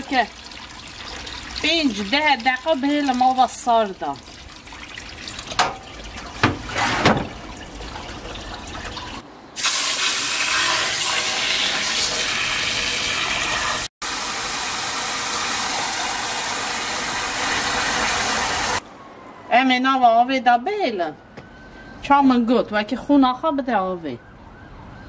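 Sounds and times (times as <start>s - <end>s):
tap water running: 0.0s - 18.8s.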